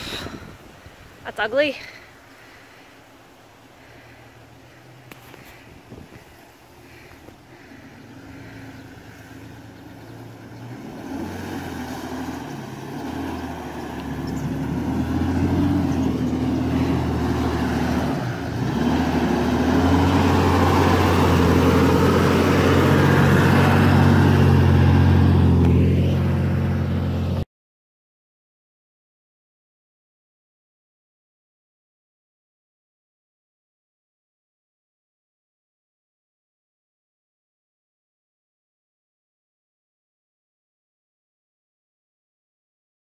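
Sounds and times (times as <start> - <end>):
vehicle engine running: 1.3 - 27.4.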